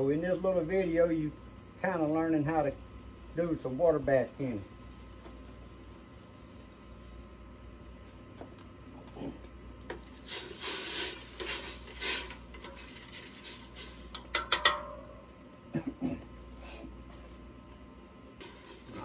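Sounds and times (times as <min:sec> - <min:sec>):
utensil scraping metal pot: 0:10.3 - 0:14.9
sharp metal clanks: 0:14.3 - 0:15.2.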